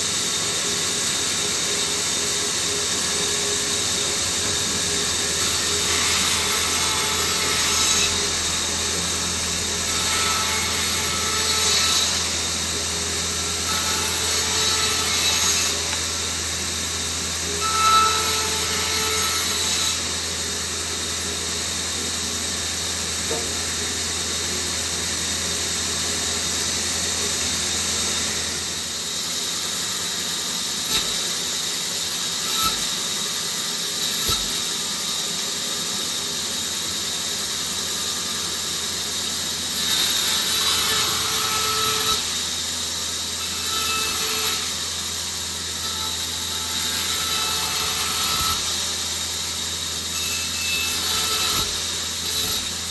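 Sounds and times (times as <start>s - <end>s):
bandsaw cutting branches: 30.8s - 35.2s, 50.9s - 52.9s.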